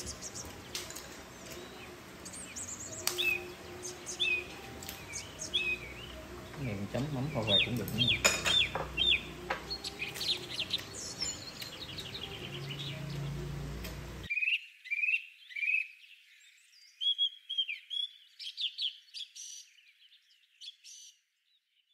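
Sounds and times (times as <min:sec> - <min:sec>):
low room noise: 0:00.0 - 0:14.3
small birds chirping: 0:00.0 - 0:21.9.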